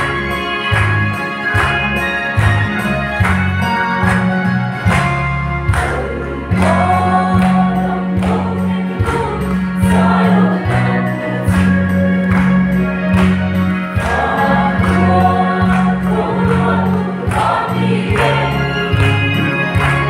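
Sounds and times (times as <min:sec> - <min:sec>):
mixed choir singing a hymn: 0:05.8 - 0:12.5, 0:13.9 - 0:20.0.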